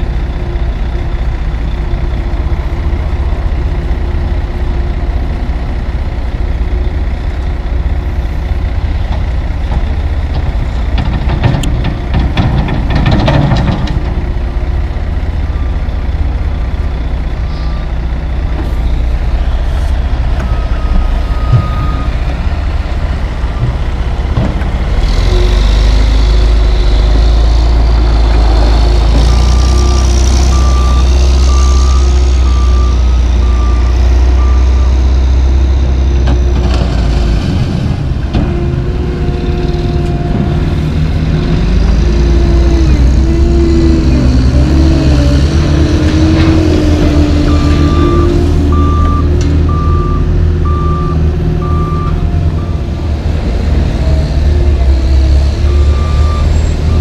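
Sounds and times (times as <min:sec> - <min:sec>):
diesel truck engine idling: 0:14.4 - 0:29.7, 0:47.4 - 0:53.3, 0:55.9 - 0:57.0
backup alarm beeping: 0:20.4 - 0:22.2, 0:47.5 - 0:52.8.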